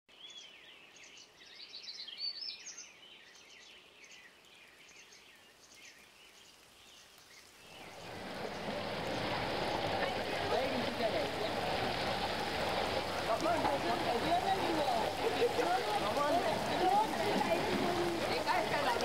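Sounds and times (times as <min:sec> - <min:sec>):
rain and flowing water: 0:00.1 - 0:19.0.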